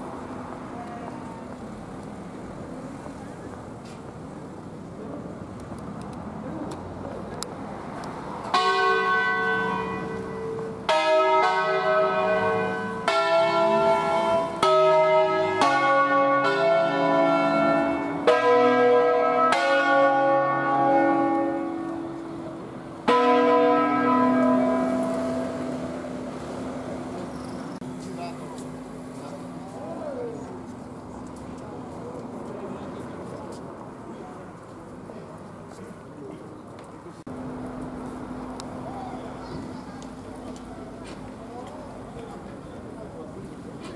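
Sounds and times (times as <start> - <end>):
church bells striking: 8.5 - 26.5.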